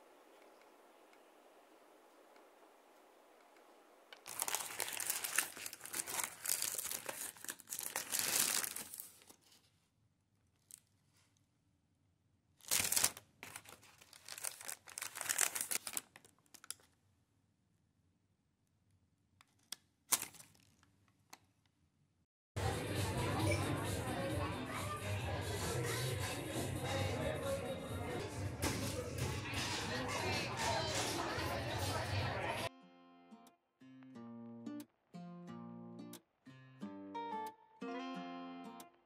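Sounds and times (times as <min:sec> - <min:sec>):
paper bag crinkling and tearing: 0:04.2 - 0:09.6, 0:12.6 - 0:16.8, 0:20.1 - 0:20.8.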